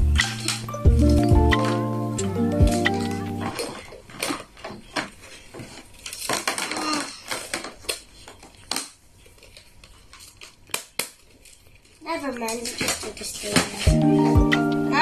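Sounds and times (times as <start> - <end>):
packaging rustling and crackling: 3.0 - 13.9.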